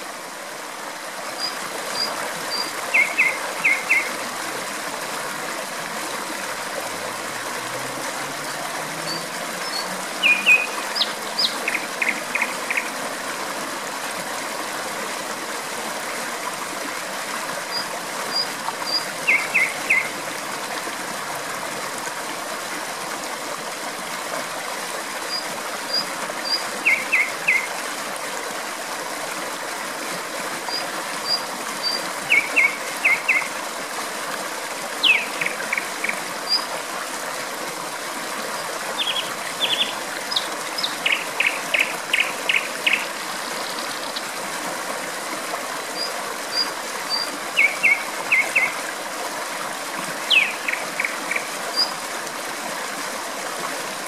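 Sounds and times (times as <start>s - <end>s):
stream water flowing: 0.0s - 54.0s
nightingale singing: 1.4s - 4.1s, 9.1s - 12.9s, 17.8s - 20.1s, 25.9s - 27.7s, 35.0s - 35.8s, 39.0s - 44.2s, 47.1s - 48.8s, 50.3s - 51.9s.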